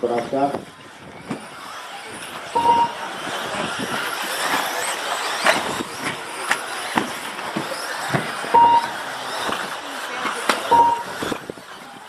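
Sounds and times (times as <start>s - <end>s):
rc cars whirring hiss: 0.6s - 12.0s
short beep: 2.6s - 3.0s, 8.6s - 9.0s, 10.7s - 11.1s.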